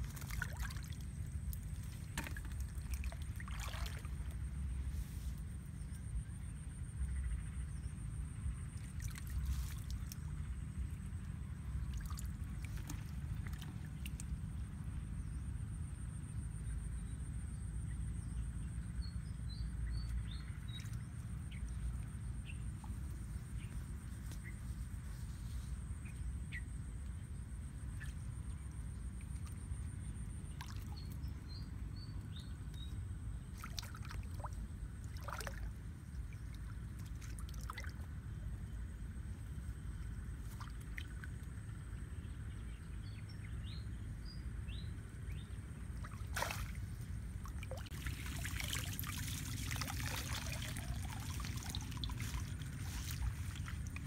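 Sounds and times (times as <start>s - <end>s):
water splashing and trickling: 0.0s - 6.2s, 8.4s - 15.3s, 20.0s - 24.5s, 27.8s - 42.0s, 45.8s - 54.0s
steady low rumble: 0.0s - 54.0s.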